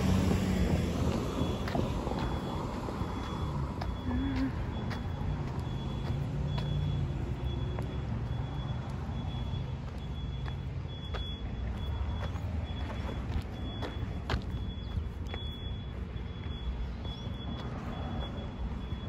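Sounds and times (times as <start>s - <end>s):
vehicle engine rumbling: 0.0s - 19.0s
light footsteps: 0.1s - 18.4s
faint high beep: 1.3s - 19.0s.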